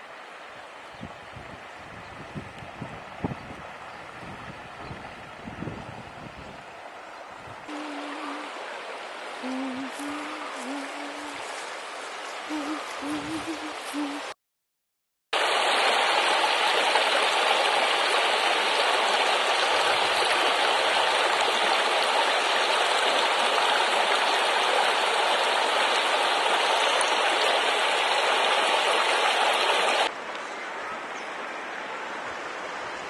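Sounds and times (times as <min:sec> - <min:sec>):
river water rushing over stones: 0:07.7 - 0:14.3, 0:15.4 - 0:30.2.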